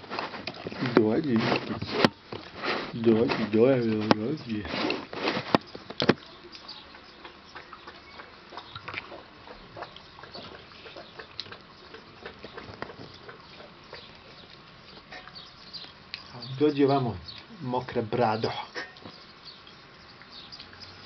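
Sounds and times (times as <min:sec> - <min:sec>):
dog lapping water from bowl: 0:00.3 - 0:16.4.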